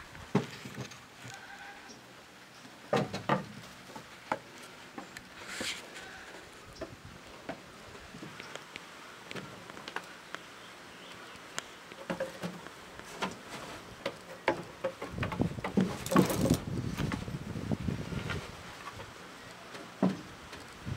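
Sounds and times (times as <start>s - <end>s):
knocking and rustling: 0.3s - 1.1s, 2.9s - 5.8s, 12.0s - 17.3s
hooves clicking on wooden boards: 11.1s - 17.3s.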